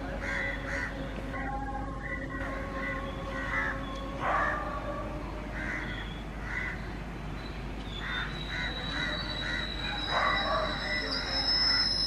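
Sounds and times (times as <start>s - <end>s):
crows cawing: 0.2s - 1.0s, 2.8s - 3.8s, 5.6s - 6.8s, 8.0s - 9.7s
train wheels squealing: 7.9s - 12.0s.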